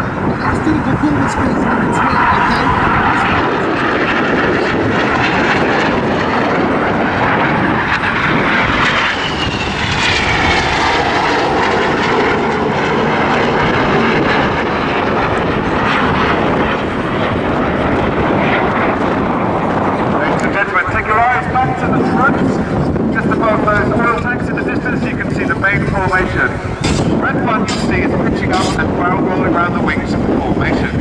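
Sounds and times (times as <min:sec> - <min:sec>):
jet whine falling in pitch: 0:00.0 - 0:29.4
jet engines rushing: 0:00.0 - 0:31.0.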